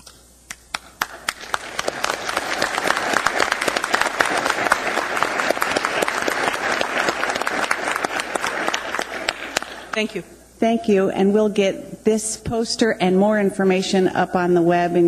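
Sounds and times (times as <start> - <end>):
audience applauding: 0.7 - 10.0.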